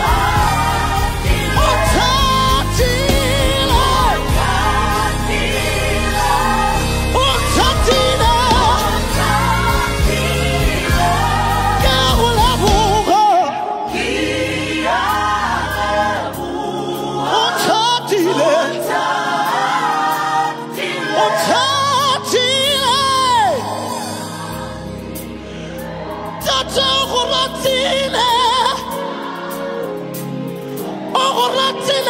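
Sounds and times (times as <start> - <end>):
man singing with heavy vibrato: 0.0 - 5.3, 5.9 - 13.9
band playing: 0.0 - 15.6
backing singers: 0.0 - 32.0.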